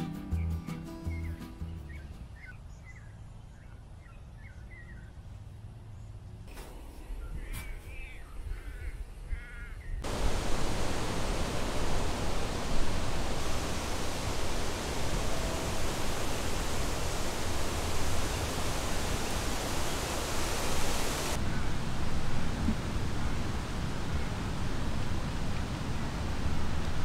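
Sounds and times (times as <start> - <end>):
steady rushing noise: 10.0 - 27.0.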